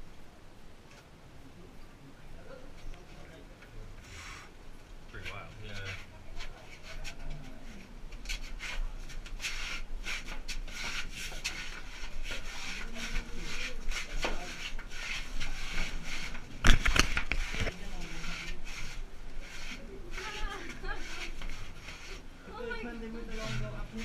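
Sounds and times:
clothing scraping dirt walls: 0:07.8 - 0:24.0.

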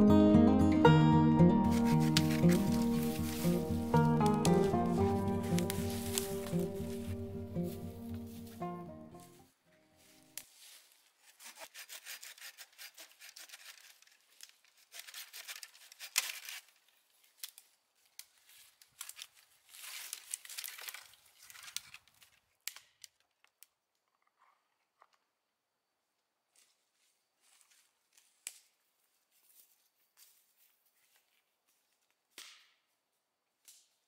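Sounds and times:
hand saw rasping through branch: 0:01.6 - 0:03.8, 0:11.2 - 0:16.7.

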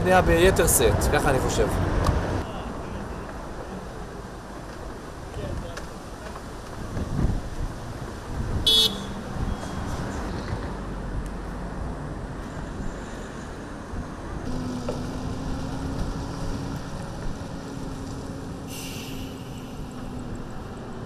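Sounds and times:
wind on microphone: 0:06.6 - 0:11.2
hiss: 0:18.7 - 0:20.1.

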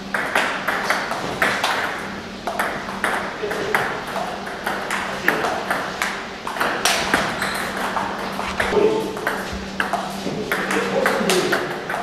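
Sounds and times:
table tennis balls clicking: 0:00.1 - 0:08.3.

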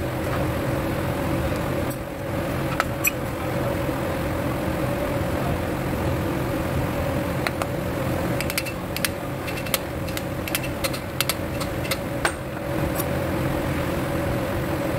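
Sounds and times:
machine hum: 0:00.0 - 0:14.9
metal tool tapping: 0:08.4 - 0:13.1.

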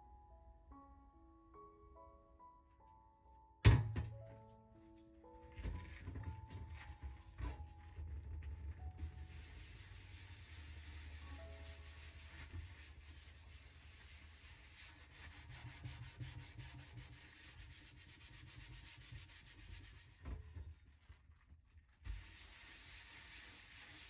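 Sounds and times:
metal scouring pad scrubbing: 0:05.4 - 0:20.6, 0:22.1 - 0:24.0.

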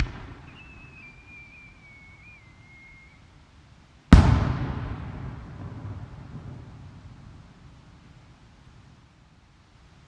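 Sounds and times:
firework burst boom: 0:00.0 - 0:01.0, 0:04.1 - 0:07.3
firework shell whistling: 0:00.0 - 0:03.2.

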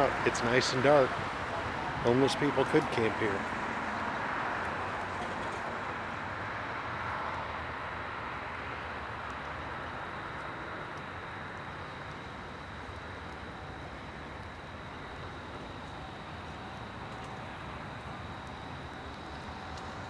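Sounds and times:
road traffic rushing past: 0:00.0 - 0:20.0
thin steady high whine: 0:00.0 - 0:20.0.

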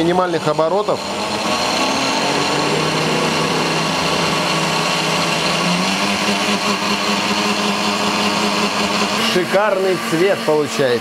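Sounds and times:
blender motor whirring: 0:00.0 - 0:11.0.

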